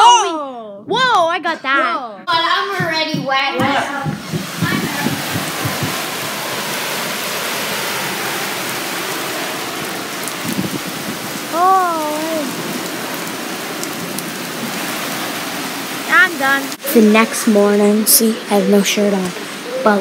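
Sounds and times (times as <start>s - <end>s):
heavy rain pouring: 2.4s - 20.0s
wavering voice-like call: 16.8s - 20.0s.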